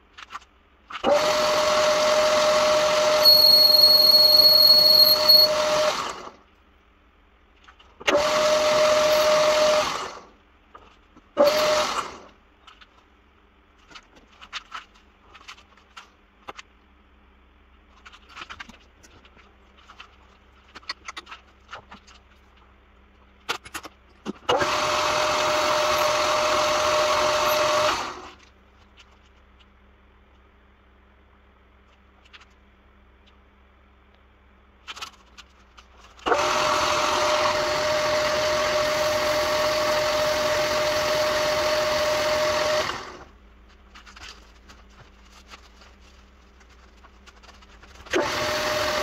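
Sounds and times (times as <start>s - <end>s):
metal lathe whining: 1.1s - 6.3s, 8.1s - 10.2s, 24.5s - 28.2s, 36.3s - 43.2s.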